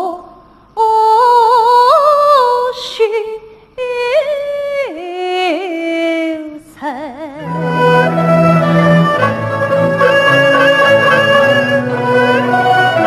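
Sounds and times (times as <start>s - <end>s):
woman singing opera: 0.0s - 13.0s
low accompanying instruments: 7.4s - 13.0s.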